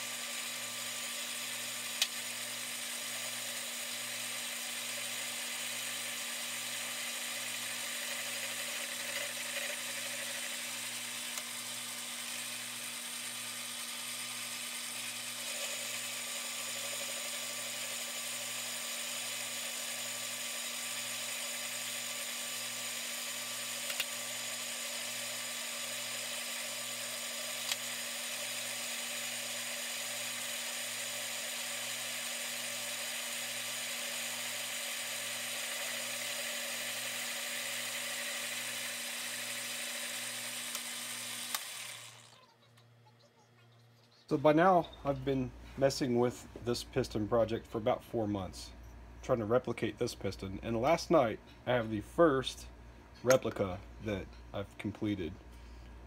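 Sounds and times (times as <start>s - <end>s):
metal lathe running: 0.1s - 42.4s.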